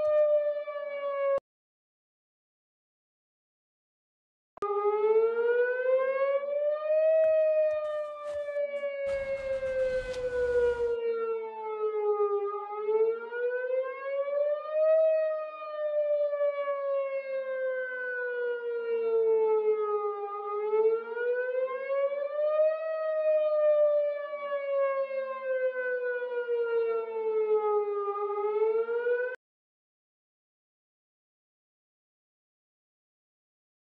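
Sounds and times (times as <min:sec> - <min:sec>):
warning siren wailing: 0:00.0 - 0:01.4, 0:04.6 - 0:29.4.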